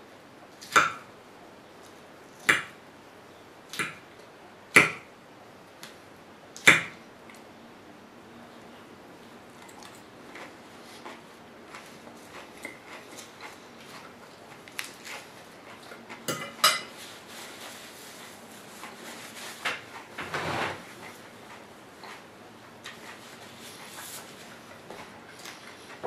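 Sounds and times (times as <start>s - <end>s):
fork clinking on ceramic bowl: 16.3s - 16.9s.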